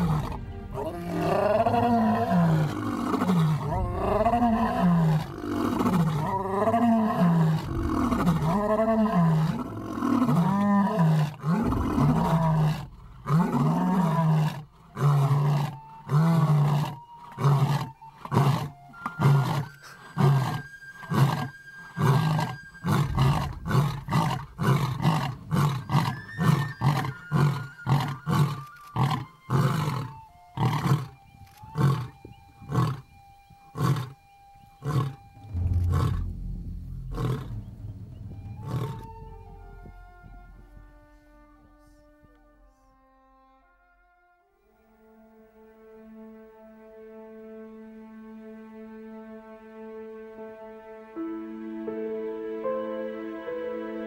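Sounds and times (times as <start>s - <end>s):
lions roaring: 0.0s - 31.1s, 34.8s - 40.0s.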